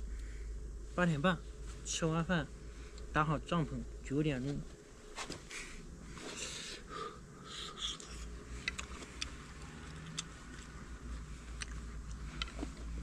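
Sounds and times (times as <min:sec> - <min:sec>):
steady low rumble: 0:00.0 - 0:06.2, 0:06.8 - 0:13.0
chewing: 0:07.8 - 0:13.0.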